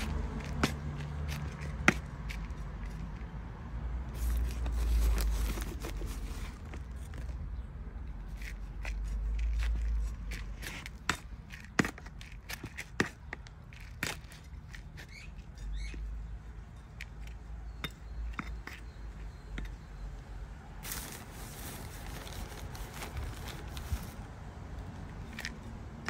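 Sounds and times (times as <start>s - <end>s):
trowel scraping potting mix: 0.0s - 3.3s, 8.2s - 19.9s.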